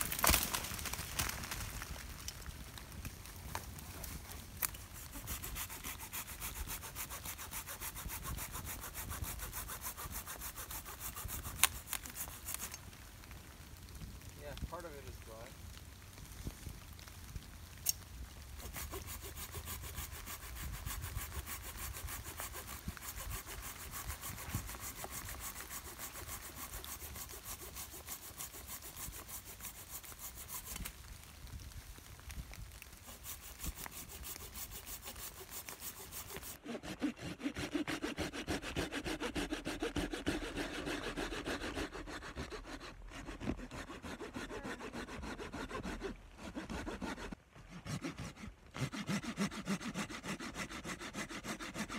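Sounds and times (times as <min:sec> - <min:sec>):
hand saw cutting wood: 0:04.6 - 0:12.8, 0:18.6 - 0:30.9, 0:33.0 - 0:51.9.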